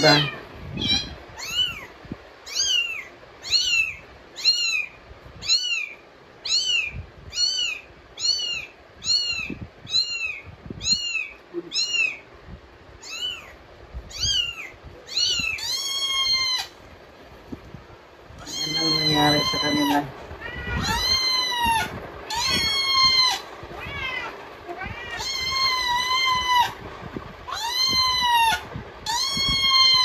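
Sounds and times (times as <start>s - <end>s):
recorded cat meows: 13.0s - 16.8s, 18.4s - 26.8s, 27.5s - 30.0s.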